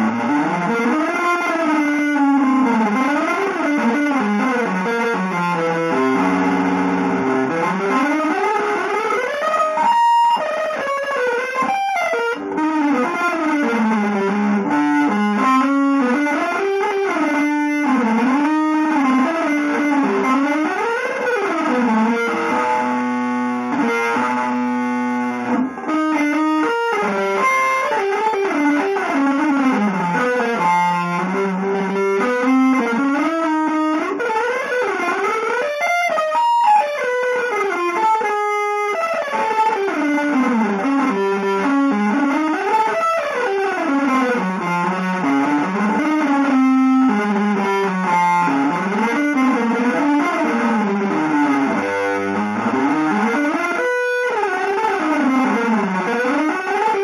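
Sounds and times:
electric guitar solo: 0:00.0 - 0:57.0.

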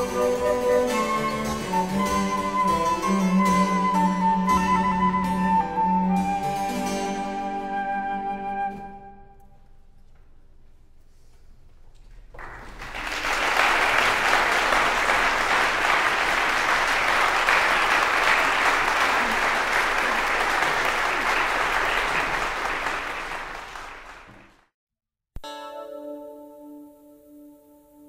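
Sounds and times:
audience applause: 0:12.3 - 0:24.7.

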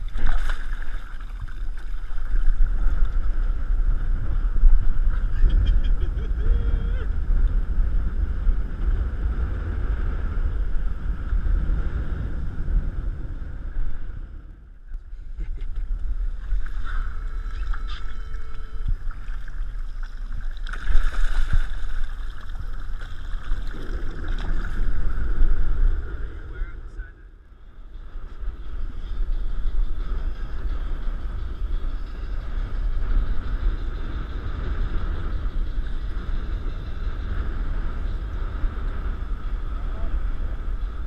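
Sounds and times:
water sloshing and splashing: 0:00.0 - 0:02.6, 0:17.6 - 0:24.9
wind buffeting microphone: 0:00.0 - 0:41.0.

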